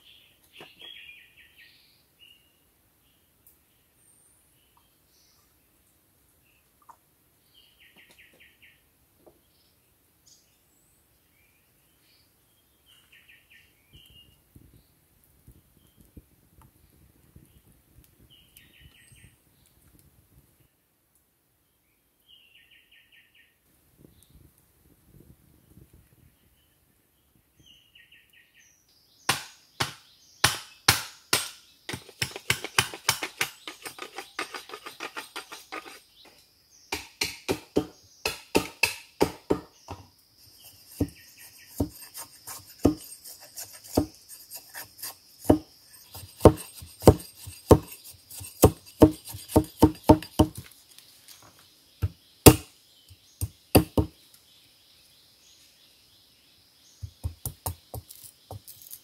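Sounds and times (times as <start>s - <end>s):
bamboo being chopped: 29.3s - 36.0s, 36.9s - 40.0s, 40.9s - 50.7s, 52.0s - 52.7s, 53.4s - 54.1s, 57.0s - 58.6s.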